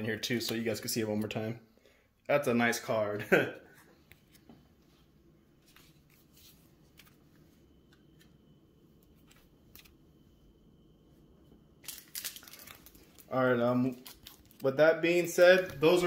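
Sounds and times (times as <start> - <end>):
cards rustling and crackling: 11.8 - 16.0.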